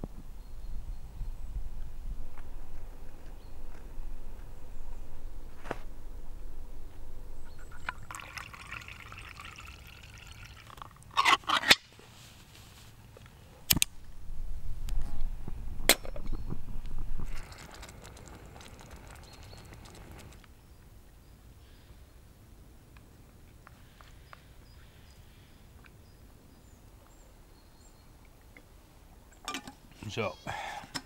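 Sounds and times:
liquid fuel trickling: 7.7 - 11.1, 17.2 - 20.4.

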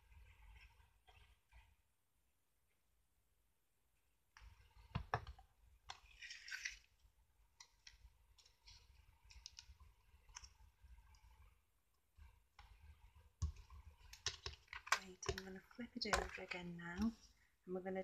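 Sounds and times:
small clicks and taps: 13.4 - 17.2.

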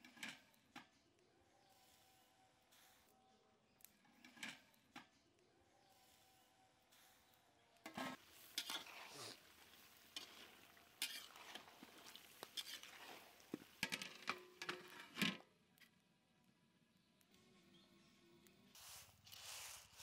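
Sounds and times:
food sizzling: 7.8 - 15.2
metal spatula scraping a pan: 7.8 - 15.4.

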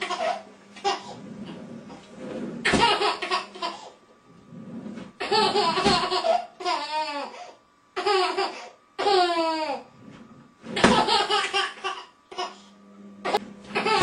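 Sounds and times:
baby laughing: 0.0 - 1.1, 2.7 - 4.0, 5.2 - 7.4, 8.0 - 9.8, 10.8 - 12.6, 13.3 - 14.0.

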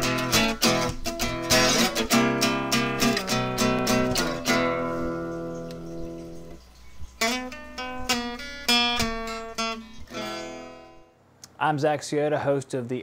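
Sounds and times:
strummed guitar: 0.0 - 6.6, 7.2 - 11.1.

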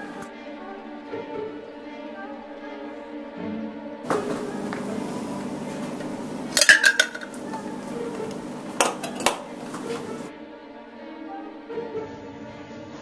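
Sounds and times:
ice clinking in ceramic mug: 4.8 - 10.3.

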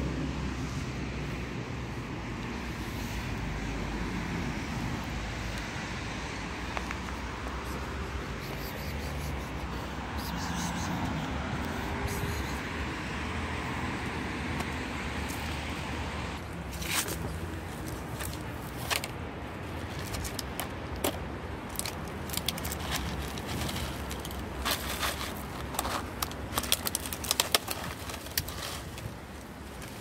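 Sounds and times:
cat crunching dry kibble: 17.9 - 30.0
plastic tub and bag crackling: 22.3 - 29.2.

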